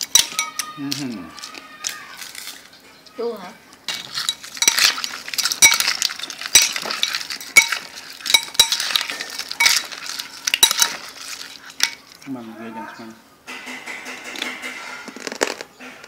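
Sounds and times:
metal spoon clinking on bowl: 0:00.0 - 0:01.6, 0:03.9 - 0:12.3
crab shells rattling: 0:00.0 - 0:12.4.

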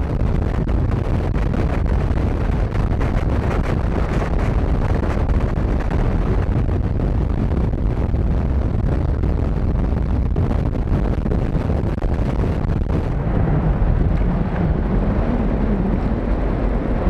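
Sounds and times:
motorcycle engine rumble: 0:00.0 - 0:17.0
wind buffeting microphone: 0:00.0 - 0:17.0.

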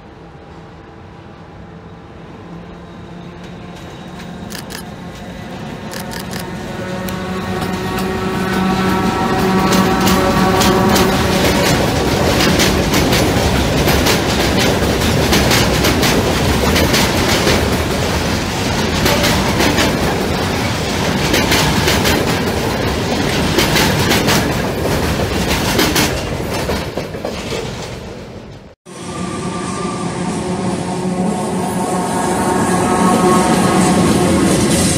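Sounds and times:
train wheels clattering over rail joints: 0:07.6 - 0:28.8.

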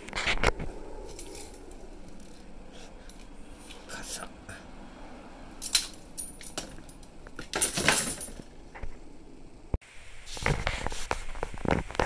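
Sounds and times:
metal umbrella ribs rattling: 0:05.6 - 0:08.6.

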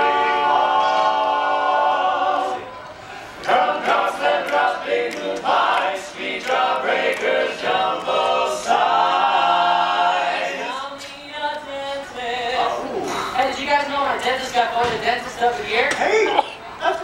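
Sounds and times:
men singing close harmony: 0:03.5 - 0:13.1.

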